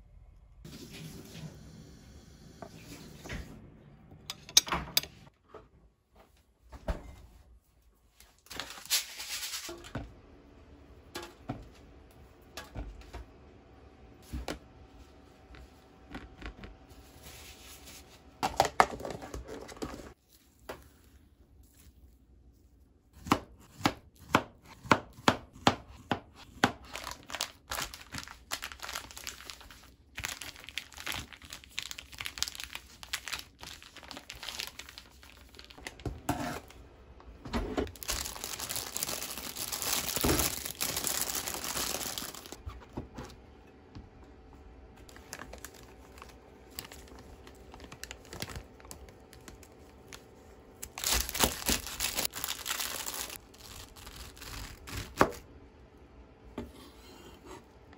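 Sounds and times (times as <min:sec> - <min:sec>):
plastic bag crinkling: 0:26.9 - 0:36.0, 0:37.9 - 0:42.6, 0:45.1 - 0:55.2.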